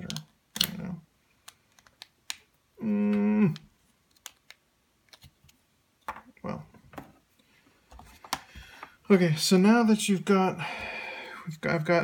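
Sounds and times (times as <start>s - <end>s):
plastic parts clicking: 1.4s - 2.4s, 3.5s - 5.3s
man humming: 2.8s - 3.6s.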